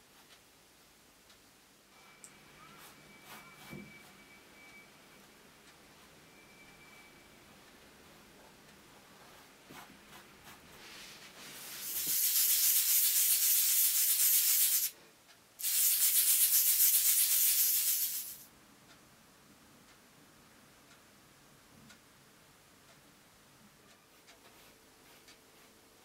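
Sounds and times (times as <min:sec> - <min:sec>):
brush scrubbing wire mesh: 0:10.9 - 0:14.9.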